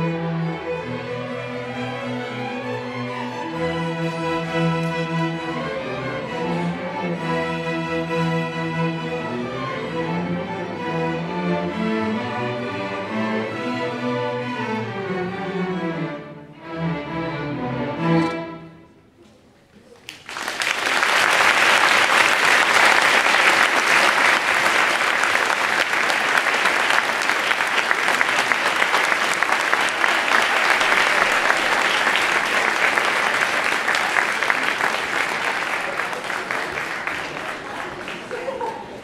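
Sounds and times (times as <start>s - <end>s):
string orchestra chords: 0.0s - 19.1s, 22.0s - 38.3s
audience applause: 20.0s - 39.0s.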